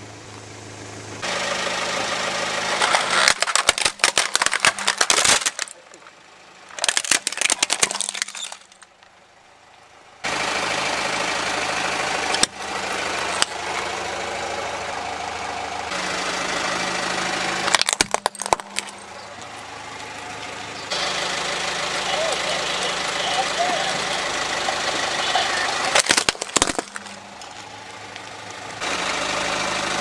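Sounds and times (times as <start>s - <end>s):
car engine idling: 0.0s - 30.0s
plastic toys cracking under tyre: 2.8s - 6.1s, 6.7s - 9.1s, 17.6s - 19.6s, 25.8s - 28.4s.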